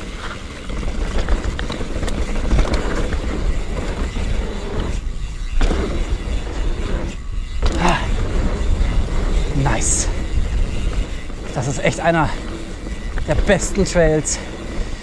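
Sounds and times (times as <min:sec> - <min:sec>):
bike clicks and rattles: 0:00.0 - 0:15.0
bike tyre rumble on dirt: 0:00.0 - 0:15.0
wind on microphone: 0:00.0 - 0:15.0.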